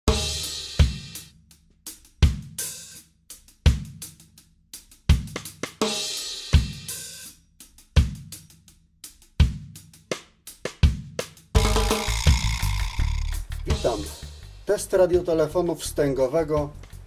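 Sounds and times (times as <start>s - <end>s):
hi-hat and snare hits: 0.1s - 17.0s
low drum hits: 11.6s - 14.4s
cymbal crashes: 11.6s - 14.7s.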